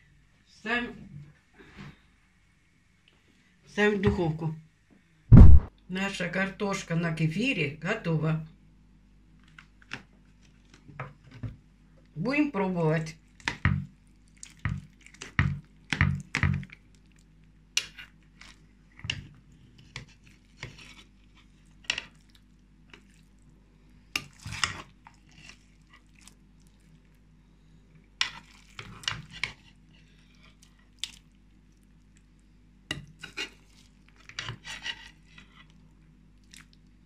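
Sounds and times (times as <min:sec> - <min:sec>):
metal spoon scraping a metal pan: 0:33.2 - 0:33.6, 0:34.3 - 0:35.7.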